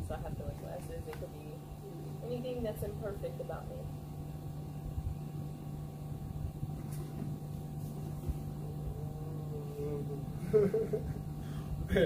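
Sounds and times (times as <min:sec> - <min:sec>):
wind rumbling on microphone: 0:00.0 - 0:01.8, 0:03.9 - 0:05.3
steady low hum: 0:00.0 - 0:12.0.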